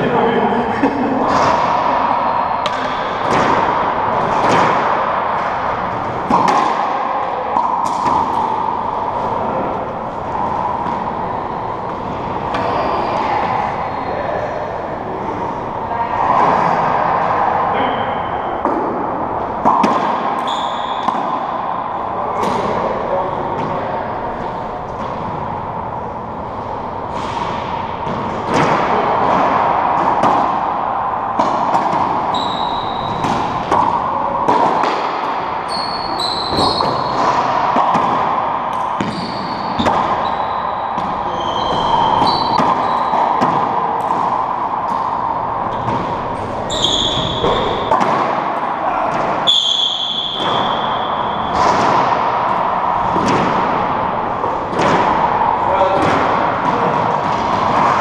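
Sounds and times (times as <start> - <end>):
steady background hum: 0.0 - 58.0
sneakers squeaking on hardwood floor: 20.4 - 21.4, 32.2 - 33.6, 35.6 - 37.4, 39.0 - 43.4, 45.6 - 47.9.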